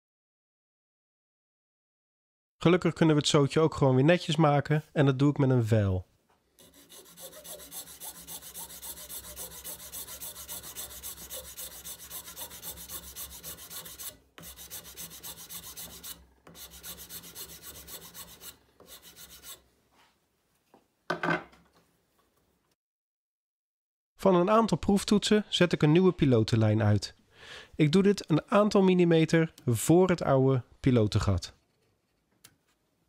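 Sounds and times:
hand file rasping on wood: 6.6 - 19.6.

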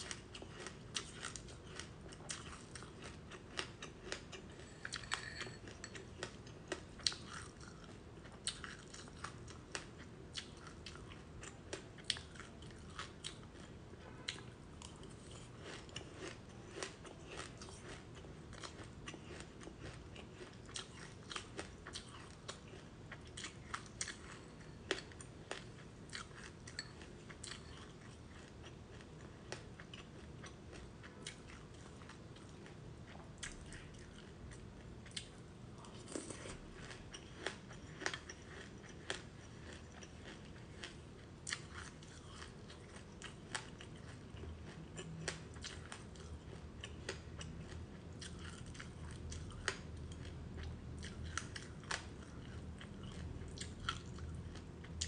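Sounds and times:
crunchy chewing: 0.0 - 55.0.

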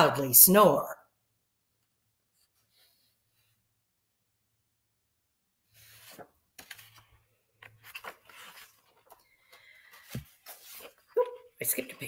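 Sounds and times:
book pages turning: 5.8 - 11.2.

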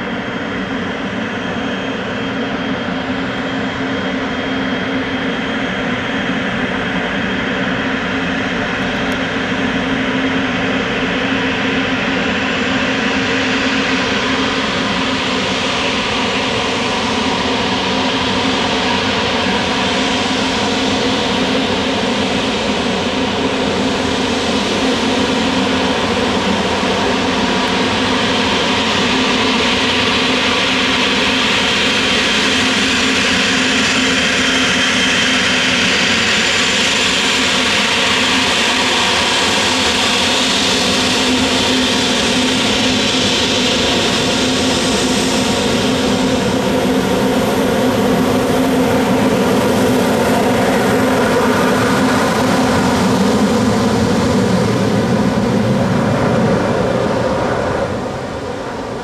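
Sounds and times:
jet engine whine: 0.0 - 59.0
jet exhaust hum: 13.2 - 59.0.

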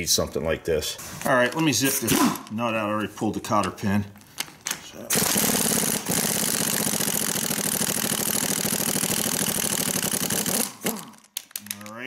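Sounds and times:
pneumatic impact wrench hammering: 5.1 - 11.4.

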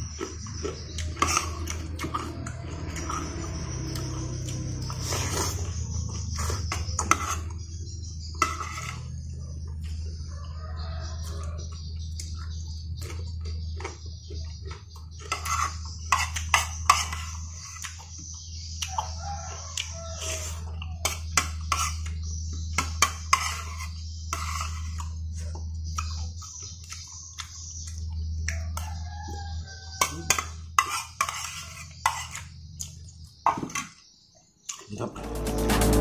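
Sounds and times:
chewing and slurping: 0.0 - 33.4
metal spoon scraping a plate: 0.2 - 9.9, 15.1 - 18.0, 20.2 - 26.1, 30.0 - 33.0
steady low hum: 35.0 - 36.0.

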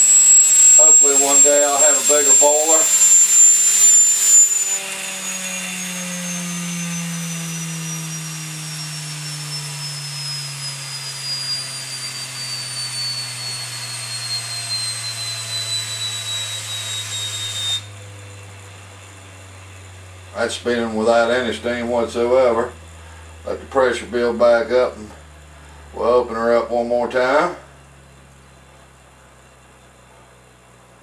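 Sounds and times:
steam hiss: 0.0 - 5.5
turbine whine falling in pitch: 0.0 - 31.0.

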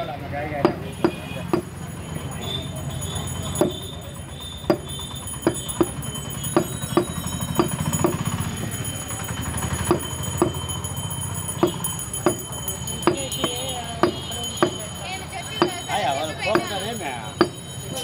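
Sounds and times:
cleaver chopping meat on wood: 0.6 - 1.7, 3.6 - 3.8, 4.6 - 8.3, 11.6 - 12.4.

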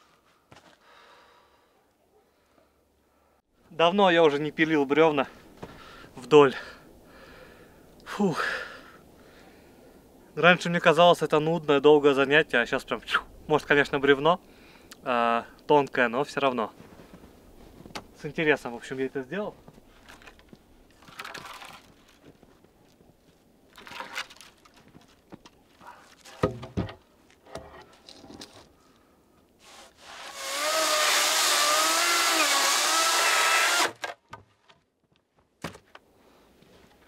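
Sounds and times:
knocks and handling sounds: 23.7 - 28.7
power tool running: 30.0 - 34.0.

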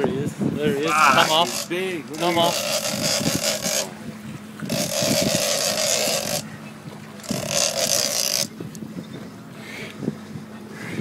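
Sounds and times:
boat engine humming: 0.2 - 11.0
fishing reel whirring: 0.9 - 4.0, 4.6 - 6.4, 7.2 - 8.6.

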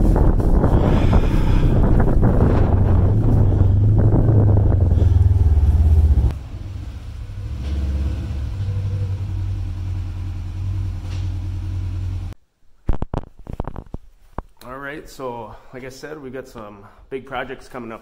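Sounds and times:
wind buffeting microphone: 0.0 - 6.4
engine running: 0.0 - 12.4.

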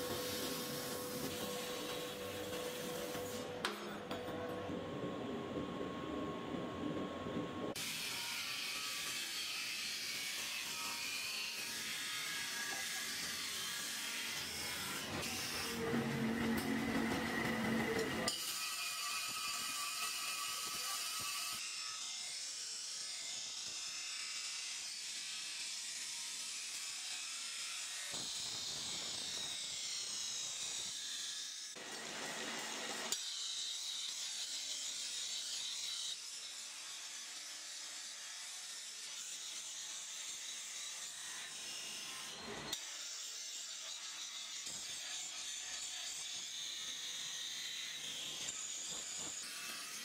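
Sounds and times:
power tool hissing whir: 0.0 - 3.7, 26.4 - 33.2.

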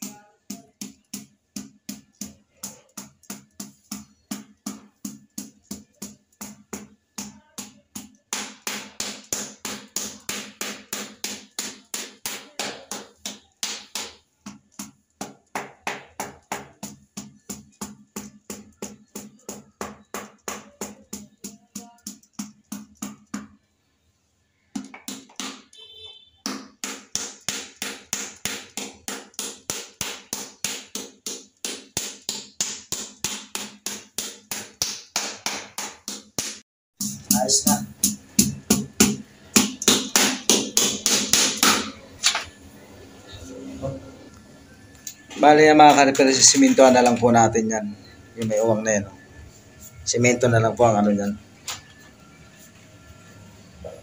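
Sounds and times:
rubber mallet tapping tile: 0.0 - 23.6, 26.5 - 41.9.

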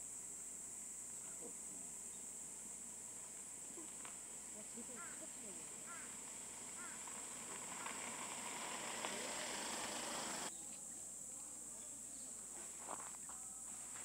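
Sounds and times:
high-pitched hiss: 0.0 - 14.0
squirrel digging in dry leaves: 3.6 - 10.5.

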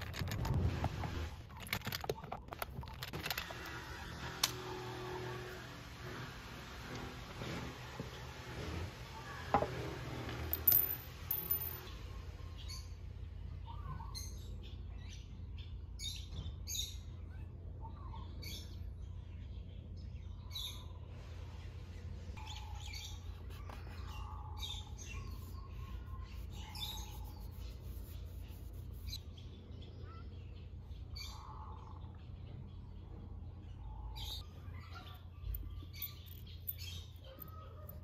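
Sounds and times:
low background hum: 0.0 - 38.0
small birds chirping: 10.7 - 38.0.

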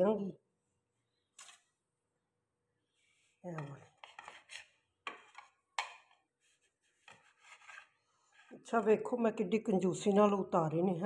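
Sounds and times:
blade scraping ceramic plate: 3.6 - 6.1, 6.9 - 8.6.

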